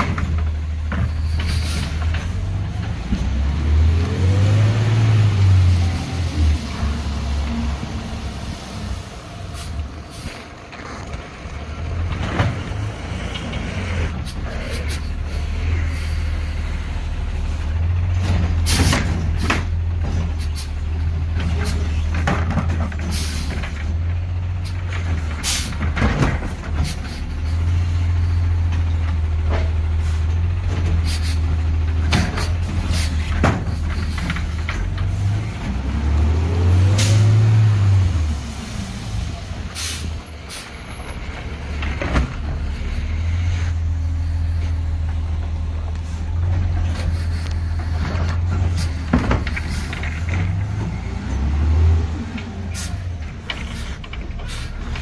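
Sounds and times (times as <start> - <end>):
diesel engine revving: 0.0 - 55.0
air brake hisses: 31.0 - 31.4, 39.7 - 40.8, 52.7 - 53.0, 53.7 - 54.8.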